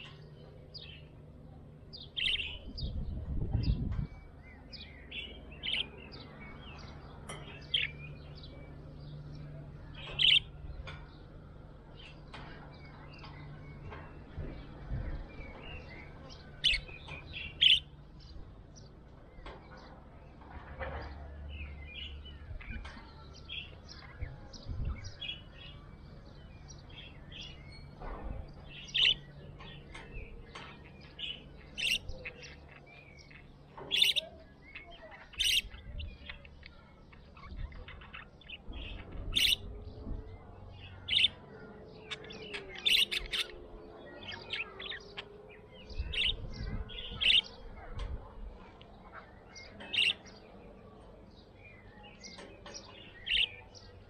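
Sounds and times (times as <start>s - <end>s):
budgerigar chirping: 34.0s - 34.2s, 35.4s - 35.7s, 39.4s - 39.6s.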